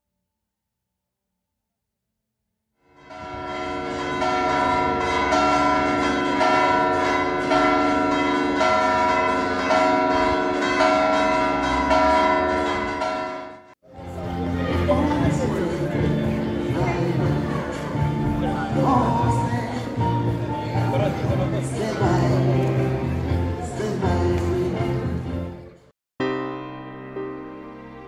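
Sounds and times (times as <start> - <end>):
church bells ringing: 2.9 - 19.7.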